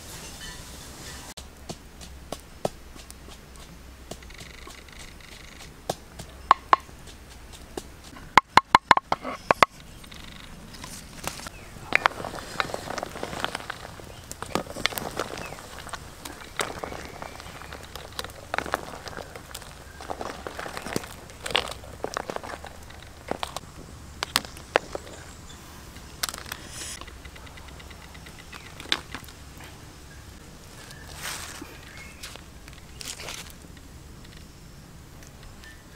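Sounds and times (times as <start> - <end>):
pestle pounding in wooden mortar: 1.4 - 9.7
eggs knocking on wood: 4.0 - 9.7
wicker basket rustling: 10.6 - 23.6, 30.6 - 33.6.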